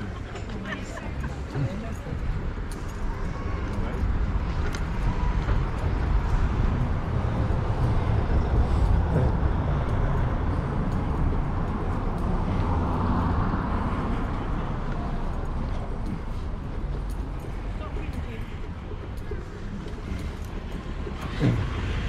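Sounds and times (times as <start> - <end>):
low traffic rumble: 0.0 - 22.0
vehicle passing by: 3.2 - 17.4.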